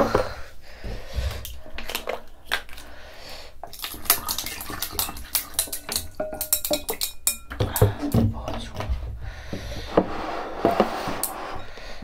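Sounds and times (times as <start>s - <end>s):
water pouring onto ice cubes: 3.6s - 7.1s.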